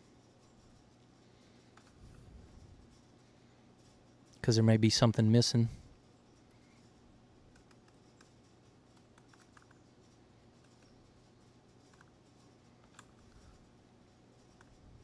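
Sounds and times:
low steady hum: 0.0s - 15.0s
keyboard typing: 1.7s - 2.0s, 6.8s - 13.6s.

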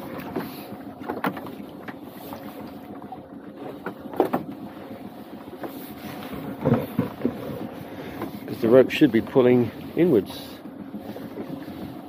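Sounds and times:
boat engine humming: 0.0s - 12.0s
gear knocking against hull: 6.2s - 8.3s.

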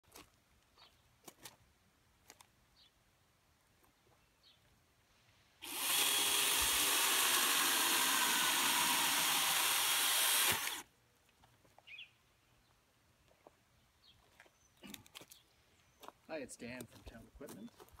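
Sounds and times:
chainsaw cutting into log: 5.6s - 10.8s.

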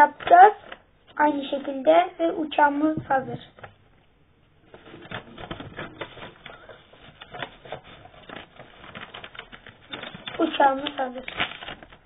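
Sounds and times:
paper rustling and crinkling: 4.6s - 12.0s
quick crackles and clicks: 4.8s - 12.0s.

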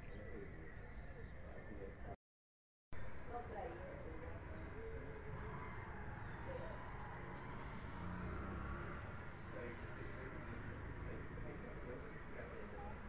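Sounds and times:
low street rumble: 3.0s - 13.0s.

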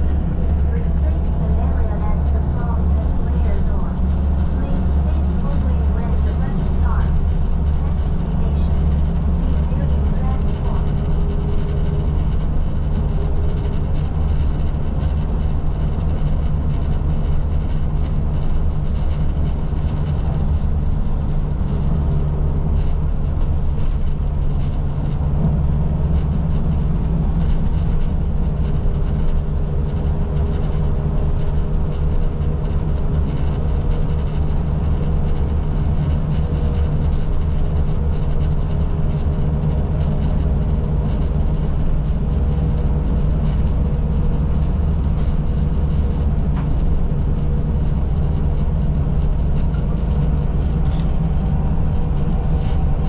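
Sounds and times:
bus engine and road rumble: 0.0s - 53.0s.

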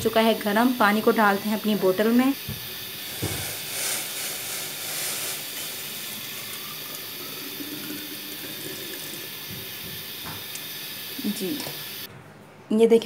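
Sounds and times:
water pouring into bottle: 3.0s - 9.8s.

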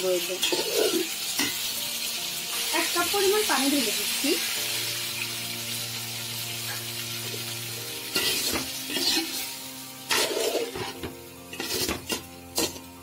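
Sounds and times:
curry sizzling: 0.0s - 13.0s
metal spoon scraping a pot: 0.4s - 1.6s, 8.1s - 9.4s, 10.1s - 12.9s.

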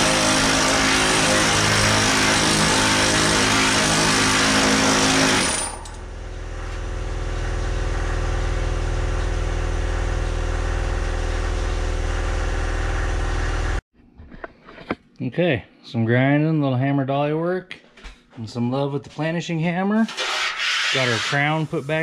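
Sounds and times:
pneumatic hammer hammering metal: 0.0s - 6.1s
mechanical running with low drone: 5.8s - 13.8s.

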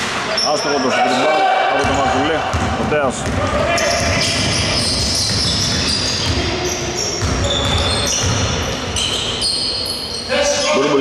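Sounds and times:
sneakers squeaking: 0.0s - 11.0s
basketball bouncing on hardwood: 1.8s - 6.5s, 7.2s - 8.6s.

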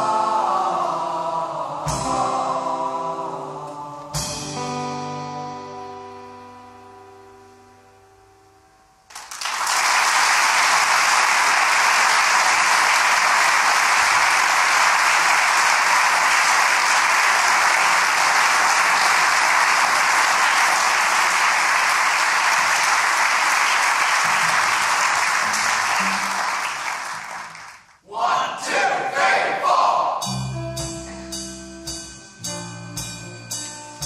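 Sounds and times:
audience applauding: 9.1s - 28.0s.

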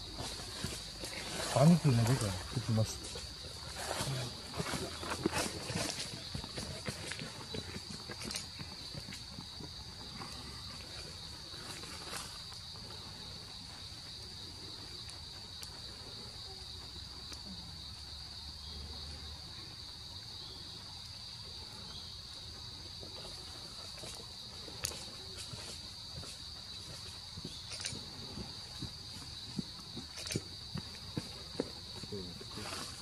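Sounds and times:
insect chorus drone: 0.0s - 33.0s.

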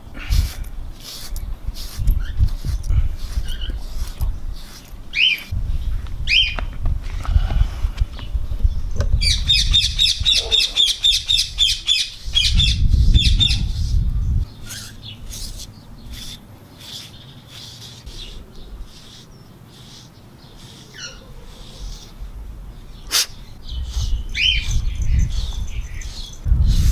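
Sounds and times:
low rumble: 5.5s - 9.5s, 12.6s - 16.1s, 22.2s - 26.9s
bird squawking: 14.6s - 22.1s.

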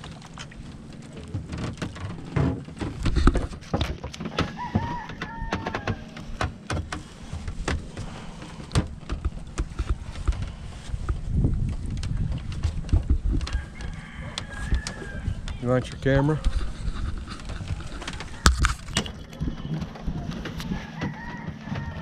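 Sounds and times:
steady low rumble: 6.0s - 21.0s.

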